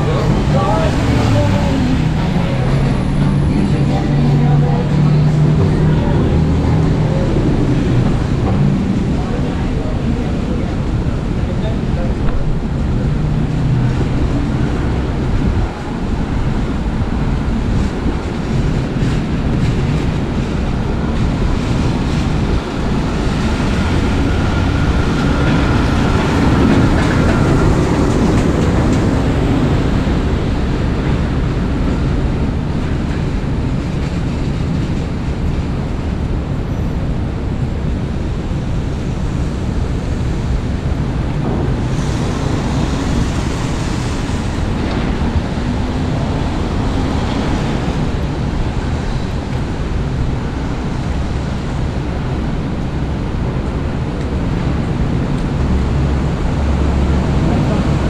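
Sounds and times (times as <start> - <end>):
heavy truck passing: 0.0 - 37.0
traffic on wet pavement: 0.0 - 58.0.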